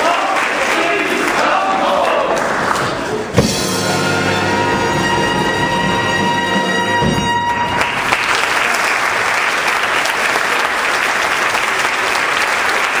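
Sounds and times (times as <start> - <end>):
audience applauding: 0.0 - 3.3, 6.3 - 13.0
big band held chord: 3.3 - 8.4.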